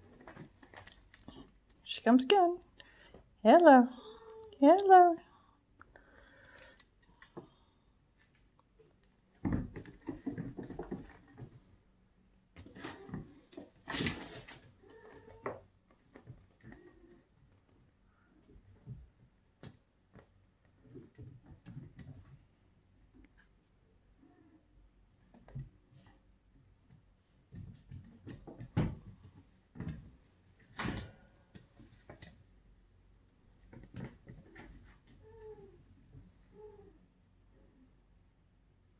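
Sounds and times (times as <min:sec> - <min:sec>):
kittens scrambling on wooden floor: 0:00.0 - 0:01.6, 0:09.0 - 0:11.8
kittens scuffling and rustling: 0:00.0 - 0:01.8, 0:06.6 - 0:23.7, 0:25.0 - 0:36.4.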